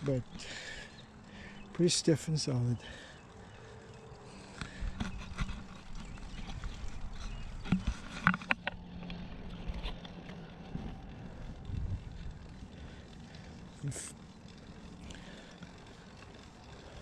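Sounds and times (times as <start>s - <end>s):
bicycle tyres humming on concrete: 0.0s - 17.0s
clicks and knocks from bike: 4.3s - 17.0s.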